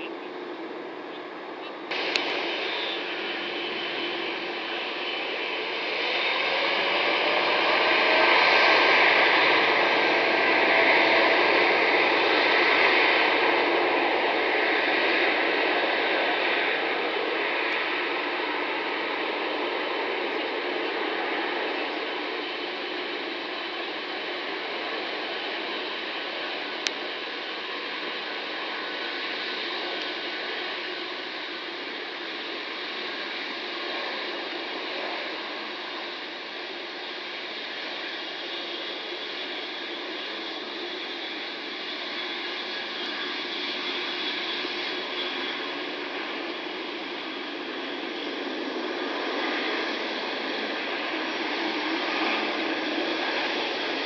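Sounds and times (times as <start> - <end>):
jet engines at takeoff thrust: 0.0 - 54.0
click: 1.9 - 2.4.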